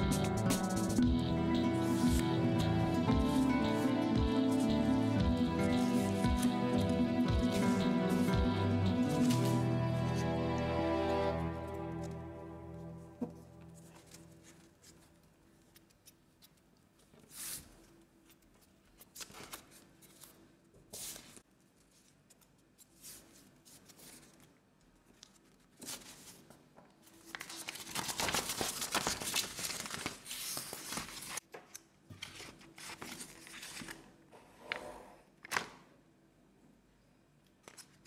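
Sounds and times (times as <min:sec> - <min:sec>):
paper rustling and rubbing: 0:00.0 - 0:01.1, 0:09.1 - 0:10.2, 0:13.2 - 0:31.4, 0:32.1 - 0:34.1
paper crinkling and creasing: 0:13.2 - 0:34.2.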